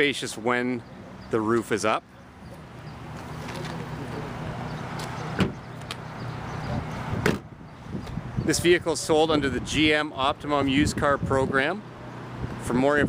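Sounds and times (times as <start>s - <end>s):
car trunk lid thump: 5.4s - 5.6s, 7.2s - 7.5s.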